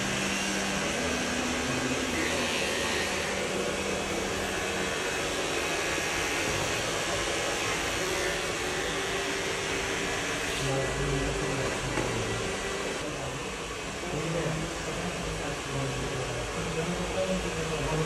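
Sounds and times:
electric hair trimmer whirring: 0:00.0 - 0:13.0.

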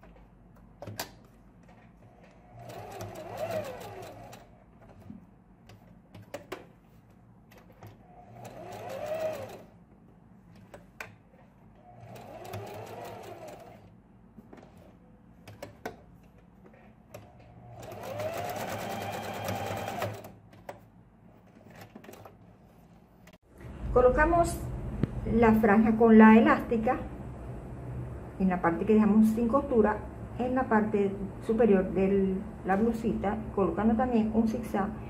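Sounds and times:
sewing machine stitching: 0:01.7 - 0:05.1, 0:07.5 - 0:09.7, 0:10.6 - 0:13.9, 0:16.6 - 0:20.4.

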